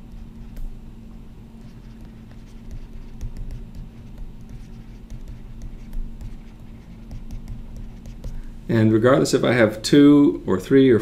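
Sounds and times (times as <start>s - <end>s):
steady low hum: 0.0s - 11.0s
stylus tapping on tablet screen: 2.0s - 8.4s.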